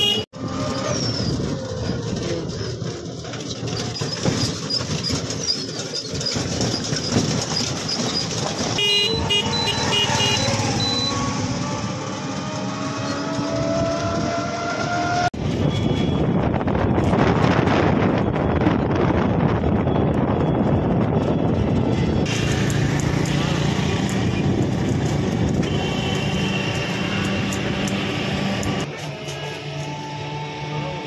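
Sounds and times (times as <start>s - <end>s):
vehicle horns tooting: 0.0s - 0.5s, 8.7s - 11.9s, 25.0s - 29.8s
road traffic: 0.0s - 31.0s
engine accelerating: 7.1s - 15.5s, 21.4s - 31.0s.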